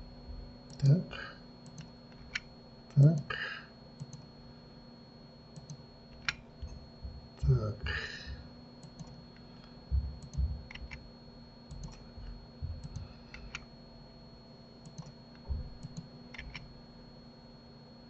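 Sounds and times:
faint steady hum: 0:00.0 - 0:18.0
mouse and keyboard clicks: 0:10.2 - 0:11.0, 0:11.7 - 0:12.0, 0:15.8 - 0:16.7.

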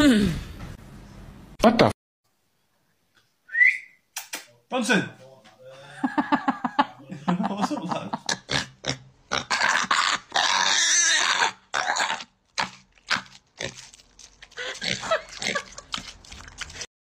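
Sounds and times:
piglet chomping wetly: 0:08.4 - 0:16.9.

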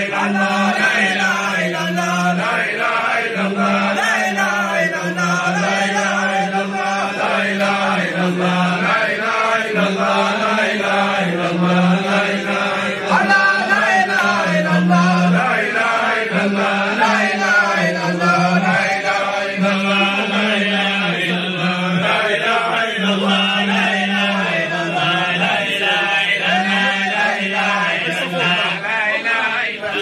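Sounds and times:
men chanting in unison: 0:00.0 - 0:30.0.

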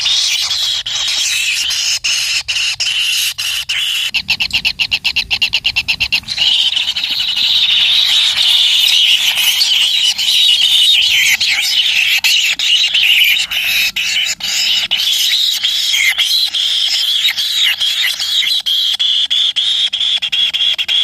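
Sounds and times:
nestlings begging buzzy chorus: 0:00.0 - 0:19.8.

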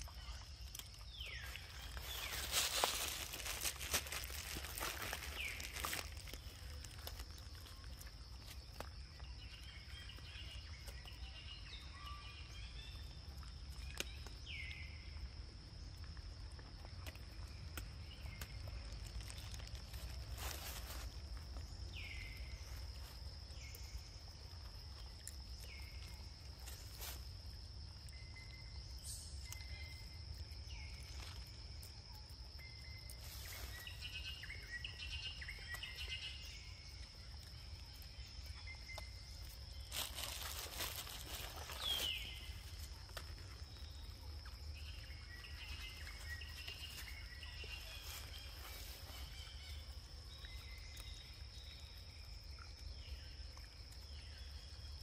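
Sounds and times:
rustling: 0:01.4 - 0:08.9, 0:18.9 - 0:21.4, 0:39.9 - 0:43.8.

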